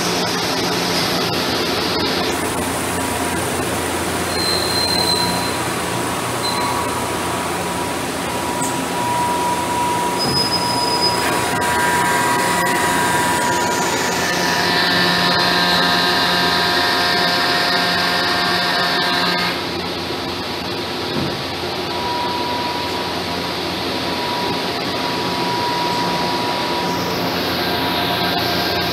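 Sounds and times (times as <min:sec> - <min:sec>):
high whining tones: 0:00.0 - 0:19.6
lathe machine hum: 0:00.0 - 0:28.9.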